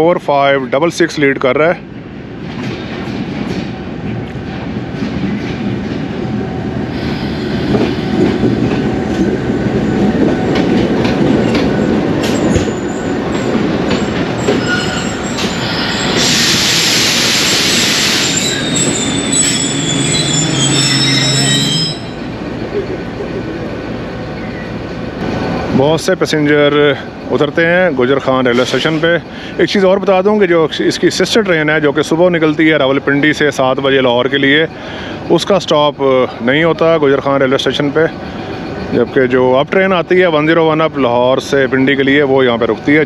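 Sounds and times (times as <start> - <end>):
train wheels rumbling and clattering: 0.0 - 43.0
brakes squealing: 11.4 - 29.8
loud hiss: 15.4 - 21.5.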